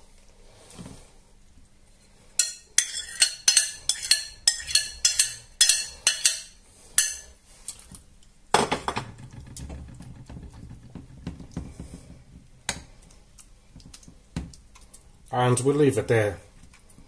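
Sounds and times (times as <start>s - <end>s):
spoon clattering in frying pan: 2.4s - 7.3s
metal spoon clinking glass bowl: 2.4s - 7.4s.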